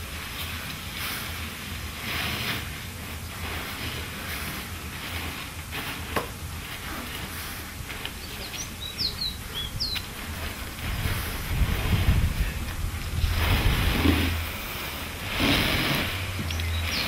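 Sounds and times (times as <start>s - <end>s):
dry leaves rustling: 0.0s - 17.0s
bird chirping: 8.1s - 11.2s, 16.2s - 17.0s.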